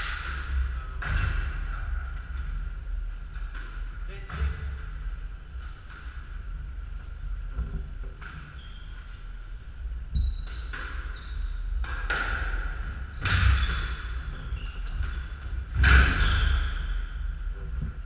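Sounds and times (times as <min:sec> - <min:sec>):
shoes squeaking on wooden floor: 0:08.1 - 0:09.2, 0:13.2 - 0:16.8.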